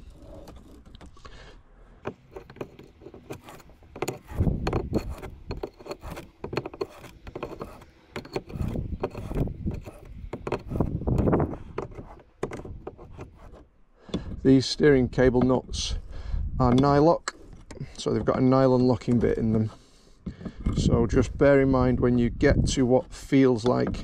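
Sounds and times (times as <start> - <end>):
tool scraping and rubbing: 0.0 - 1.4, 2.0 - 14.3, 16.7 - 20.9
metallic clicks and knocks: 2.0 - 13.4.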